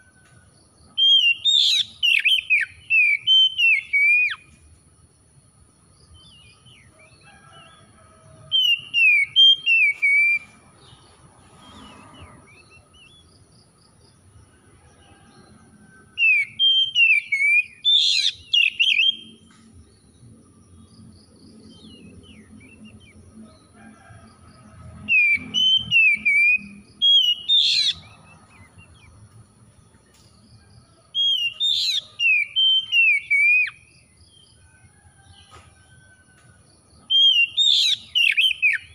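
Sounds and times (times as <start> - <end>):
bird singing whistled phrases: 1.0 - 4.4, 8.6 - 10.5, 16.2 - 19.4, 25.2 - 28.0, 31.2 - 33.8.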